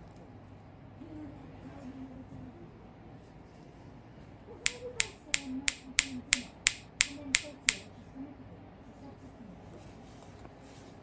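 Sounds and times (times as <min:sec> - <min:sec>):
sharp clicks: 0:04.7 - 0:07.9.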